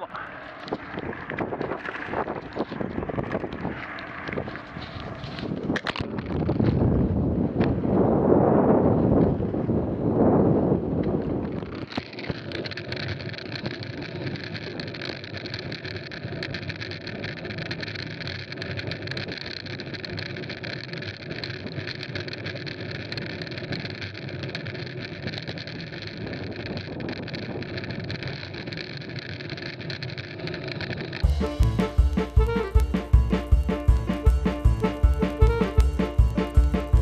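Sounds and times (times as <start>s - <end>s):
wind rush: 0.0s - 11.9s
bike tyres on gravel: 0.0s - 37.0s
gravel ticks and crackles: 0.0s - 37.0s.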